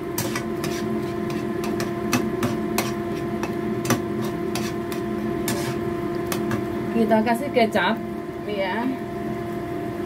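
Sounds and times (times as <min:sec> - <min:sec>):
metal spatula scraping frying pan: 0:00.0 - 0:06.6
steady hum: 0:00.0 - 0:10.0.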